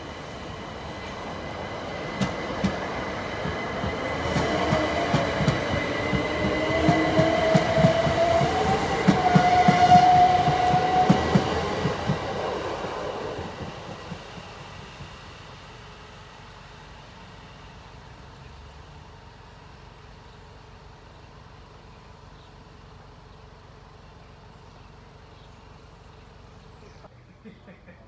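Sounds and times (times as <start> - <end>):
electric train motors whining: 0.0 - 17.4
train wheels clattering: 0.5 - 16.0.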